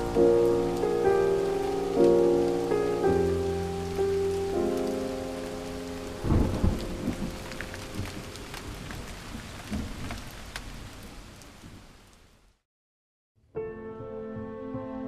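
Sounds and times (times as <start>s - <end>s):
water drips: 0.0s - 10.6s
steady rain: 0.0s - 12.6s
thunder clap: 6.2s - 9.1s.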